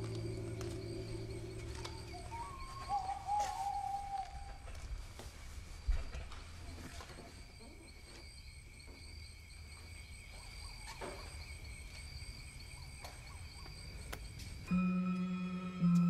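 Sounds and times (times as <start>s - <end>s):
low rumble: 0.0s - 2.8s.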